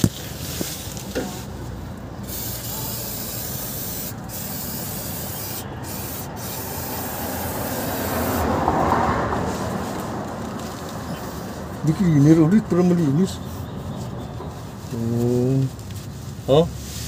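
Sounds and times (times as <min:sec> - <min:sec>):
aerosol spray can hissing: 0:02.3 - 0:08.5
loud rushing noise: 0:05.6 - 0:11.8.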